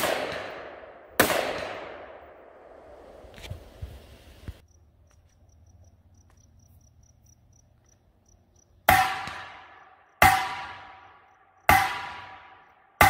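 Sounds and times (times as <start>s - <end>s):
rifle shot: 0.0s - 3.2s, 8.9s - 12.7s
insect chirping: 3.9s - 8.9s, 11.0s - 11.7s.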